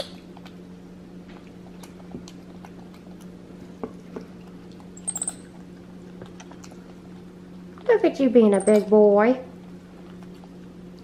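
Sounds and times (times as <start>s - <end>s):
steady low hum: 0.0s - 11.0s
monkey chewing food: 0.2s - 7.9s, 9.5s - 11.0s
high-pitched monkey squeaks: 5.0s - 5.5s, 8.5s - 8.9s.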